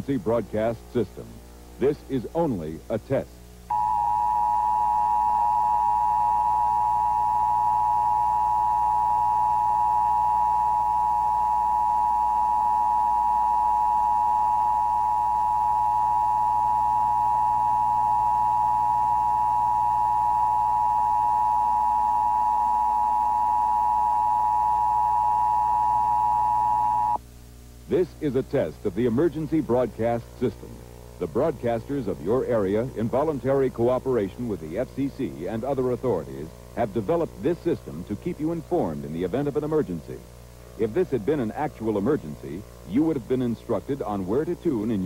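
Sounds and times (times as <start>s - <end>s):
steady two-tone alert signal: 3.7s - 27.2s.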